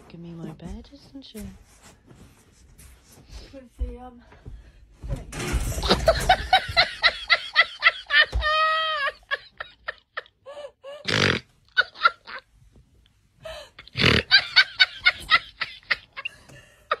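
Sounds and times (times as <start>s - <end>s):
person laughing hard: 5.8s - 12.4s, 13.8s - 17.0s.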